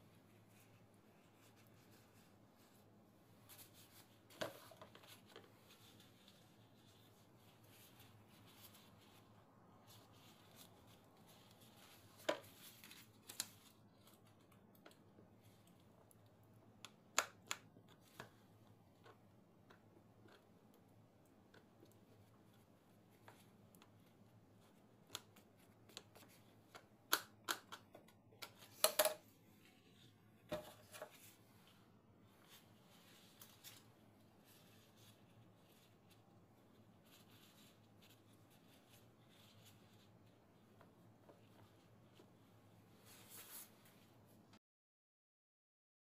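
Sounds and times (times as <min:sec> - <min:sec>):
plastic clicks and taps: 0:25.1 - 0:29.2.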